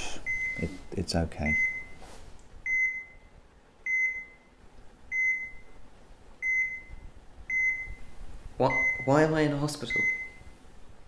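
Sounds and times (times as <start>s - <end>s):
heart monitor beeping: 0.2s - 0.8s, 1.5s - 2.0s, 2.6s - 3.3s, 3.9s - 4.5s, 5.1s - 5.8s, 6.4s - 8.1s, 8.7s - 9.2s, 9.9s - 10.5s.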